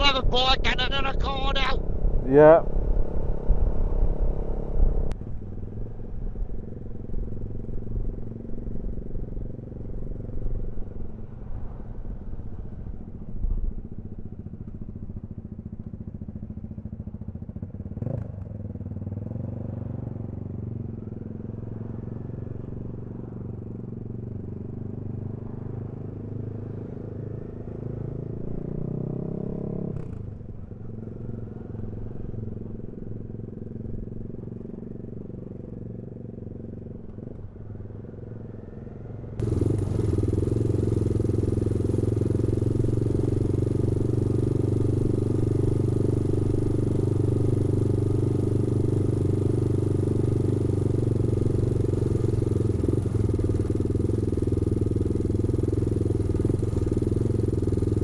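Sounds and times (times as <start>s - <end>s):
motorcycle engine running: 0.0s - 58.0s
road and wind noise: 0.0s - 58.0s.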